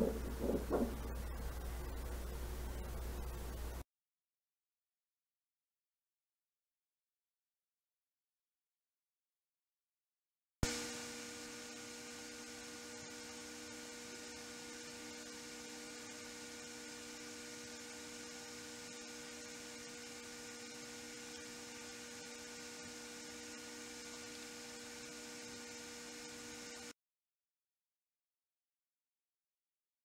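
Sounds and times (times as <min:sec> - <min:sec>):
electrical hum with hiss: 0:00.0 - 0:03.8, 0:10.6 - 0:26.9.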